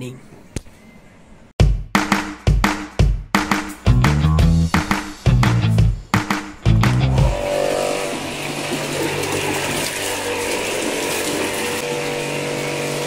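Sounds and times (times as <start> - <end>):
music: 1.6 - 7.6.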